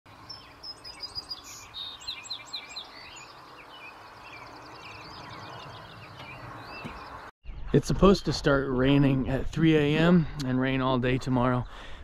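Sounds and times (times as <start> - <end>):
small birds chirping: 0.1 - 8.4.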